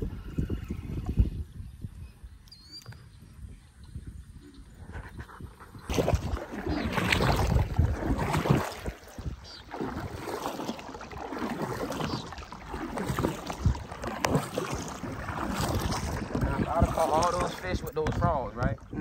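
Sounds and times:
wind noise on microphone: 0.0 - 10.8, 11.4 - 19.0
paddle strokes splashing water: 5.2 - 19.0.

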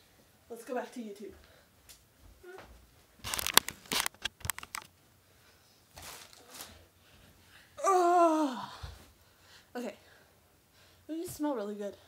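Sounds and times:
drawn-out vocal cry: 7.8 - 8.8.

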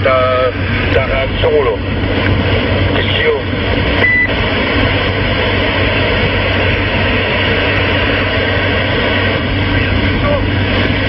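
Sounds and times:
radio static hiss: 0.0 - 1.9, 2.5 - 11.0
short high beep: 4.0 - 4.3.

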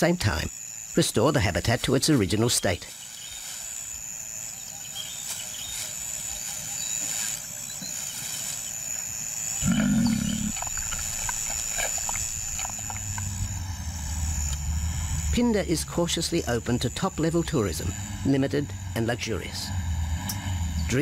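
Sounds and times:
lion growling: 9.6 - 13.4.

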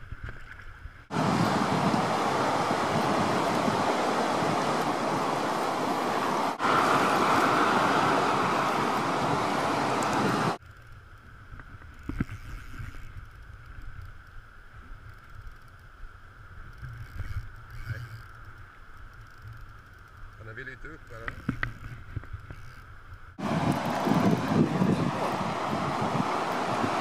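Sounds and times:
wind rumble on microphone: 0.0 - 20.5, 21.1 - 27.0
river water rushing: 1.1 - 10.6, 23.4 - 27.0.

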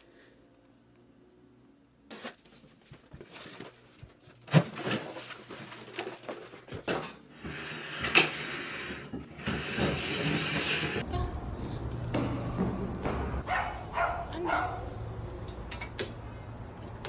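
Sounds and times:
shuffling and scraping: 2.1 - 6.9.

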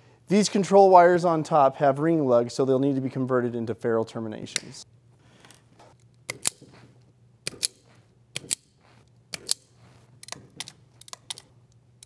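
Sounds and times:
wiring tool clicking: 6.0 - 6.8, 7.4 - 11.8.

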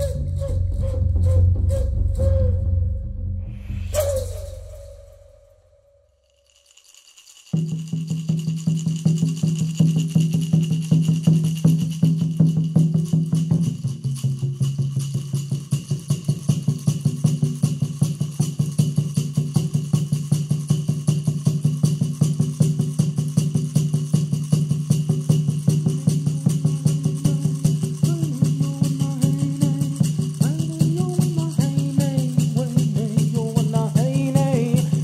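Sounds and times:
fast percussion beat: 0.0 - 2.7, 3.6 - 5.3, 6.3 - 35.0
low held tone: 0.0 - 6.1, 25.8 - 31.8
shaken rattle: 3.7 - 35.0.

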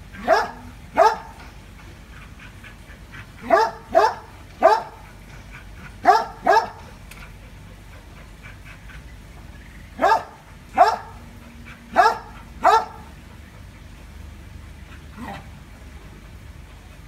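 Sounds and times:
dog barking: 0.2 - 1.4, 3.4 - 5.0, 6.0 - 6.9, 10.0 - 11.2, 11.9 - 13.1.

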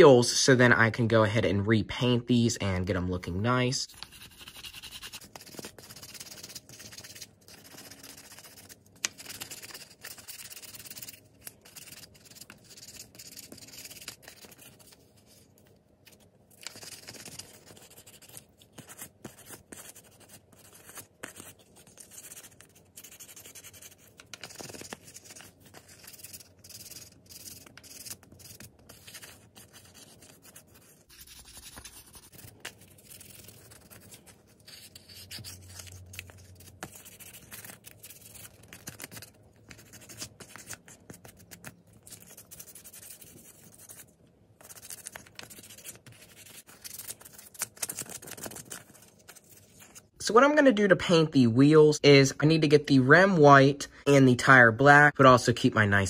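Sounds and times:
sandpaper scratchy rubbing: 4.0 - 14.9, 16.6 - 39.0.

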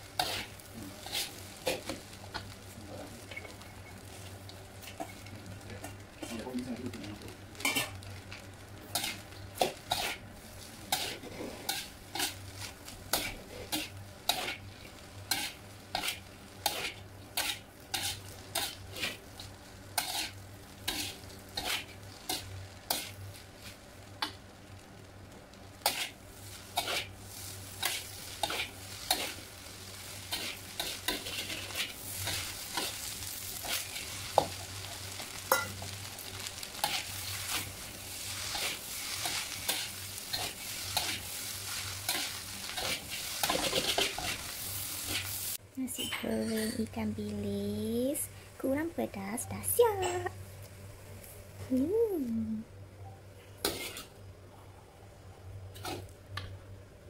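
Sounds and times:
food sizzling: 0.0 - 52.7, 53.4 - 54.3, 55.5 - 57.0
metal spatula scraping a wok: 0.2 - 2.0, 8.9 - 19.3, 20.0 - 23.2, 25.8 - 29.4, 30.0 - 45.4, 53.6 - 54.2.

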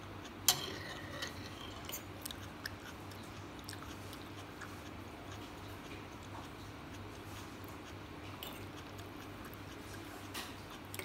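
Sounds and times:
soft chewing: 0.0 - 11.0
metal fork clinking ceramic bowl: 0.5 - 2.1, 8.4 - 8.6.

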